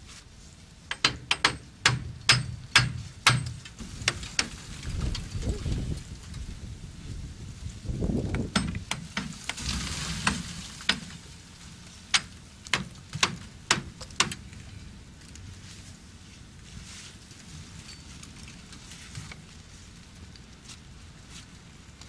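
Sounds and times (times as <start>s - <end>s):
wind buffeting microphone: 3.8s - 9.1s
ice cracking on metal mast: 8.5s - 11.3s.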